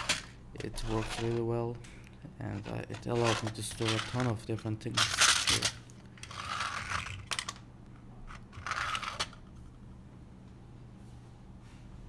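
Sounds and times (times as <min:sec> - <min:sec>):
plastic drawers sliding: 0:02.5 - 0:04.4.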